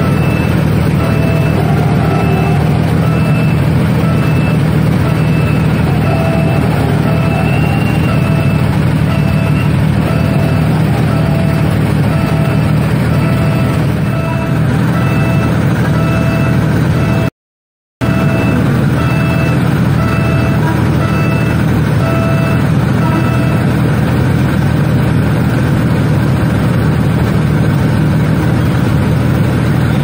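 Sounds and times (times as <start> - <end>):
crossing signal short beeps: 0.0 - 17.3, 18.0 - 23.8
engines idling: 0.0 - 17.3, 18.0 - 30.0.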